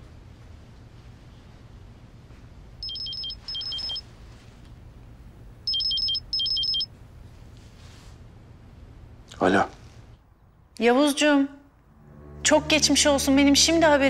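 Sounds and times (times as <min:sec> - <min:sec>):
phone ringtone beeps: 0:02.8 - 0:04.0, 0:05.7 - 0:06.9.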